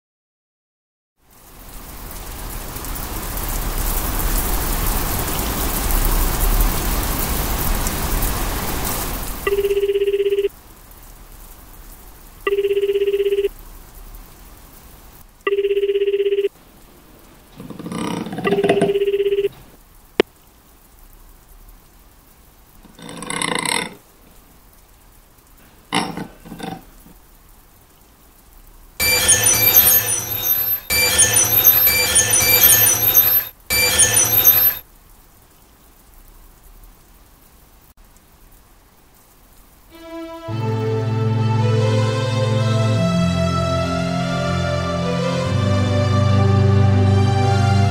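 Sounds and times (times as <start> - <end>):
steady rain: 1.2 - 47.9
telephone ringing: 9.5 - 10.5, 12.5 - 13.5, 15.5 - 16.6, 18.4 - 19.6, 29.0 - 34.8.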